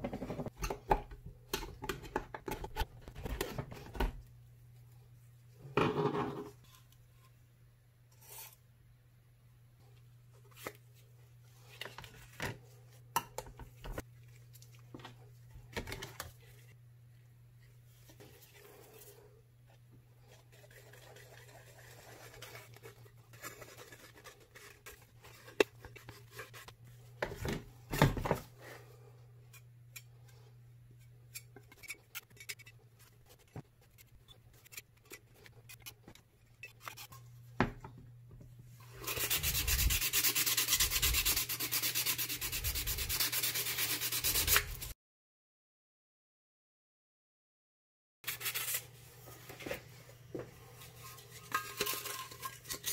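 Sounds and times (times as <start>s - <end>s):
hand sanding metal: 39.0s - 44.9s.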